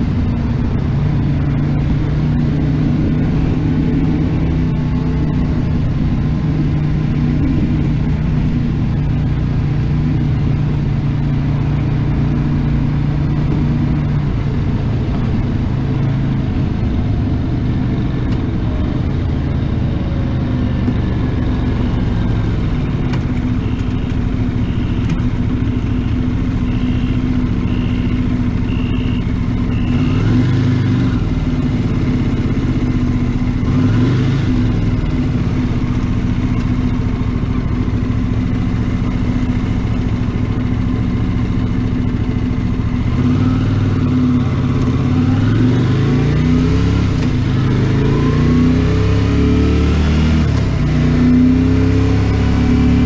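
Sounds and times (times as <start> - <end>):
motorcycle engine accelerating: 0.0 - 53.0
faint high beep: 23.5 - 30.3.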